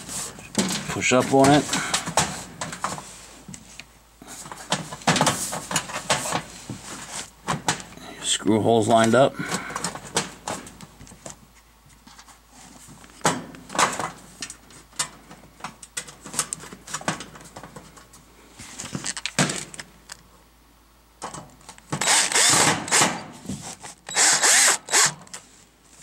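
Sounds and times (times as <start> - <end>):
drill-driver running: 22.0 - 23.2, 24.1 - 25.2.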